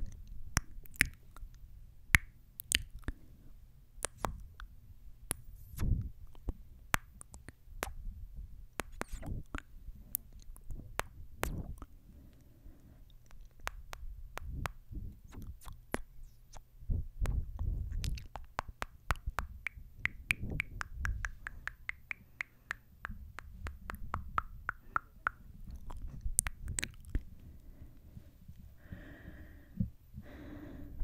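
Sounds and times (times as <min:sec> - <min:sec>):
wet lip smacks: 0:00.0 - 0:01.6, 0:02.2 - 0:03.2, 0:04.0 - 0:04.7, 0:05.3 - 0:08.0, 0:08.8 - 0:11.9, 0:13.1 - 0:27.3
high squeaky smooches: 0:08.8 - 0:10.8.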